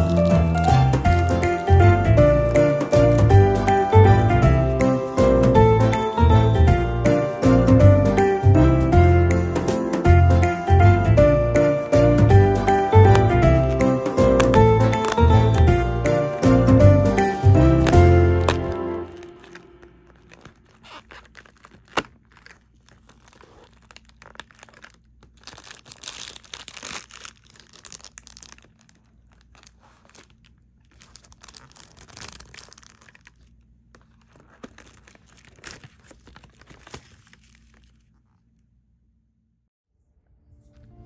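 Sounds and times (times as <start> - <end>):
paper crinkling and rustling: 0.0 - 3.3, 12.9 - 16.0, 17.1 - 38.7
cardboard snap: 13.0 - 15.7, 17.8 - 19.7
cardboard tearing open: 13.0 - 15.7, 17.4 - 38.1.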